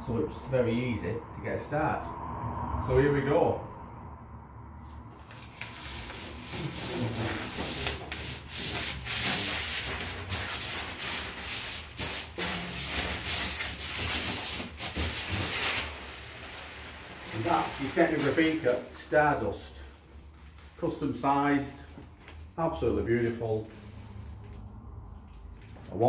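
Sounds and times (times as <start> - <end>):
plastic film peeling and crackling: 4.8 - 21.0.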